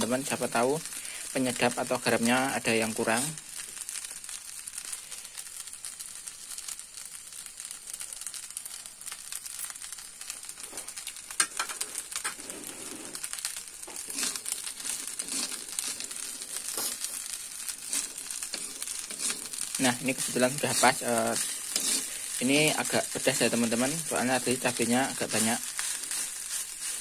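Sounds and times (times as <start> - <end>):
rice sizzling in a wok: 0.0 - 27.0.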